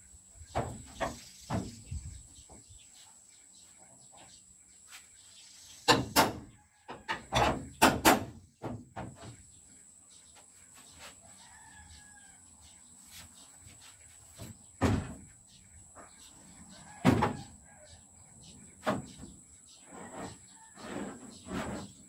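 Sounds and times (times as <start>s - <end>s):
hammer knocking on metal panel: 7.4s - 9.2s.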